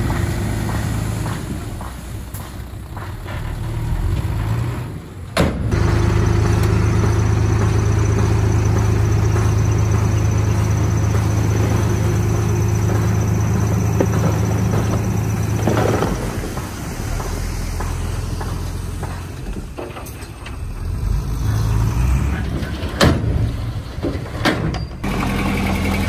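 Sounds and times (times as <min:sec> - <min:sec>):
diesel engine droning: 0:00.0 - 0:26.0.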